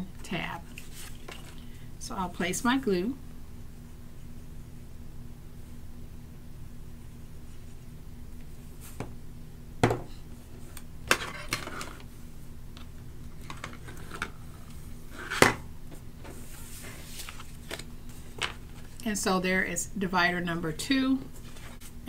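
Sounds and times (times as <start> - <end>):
paper rustling: 0.7 - 1.6, 16.2 - 19.0.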